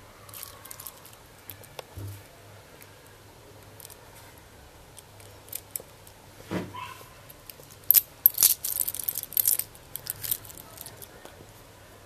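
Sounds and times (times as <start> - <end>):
watch bracelet links clinking: 7.3 - 11.1.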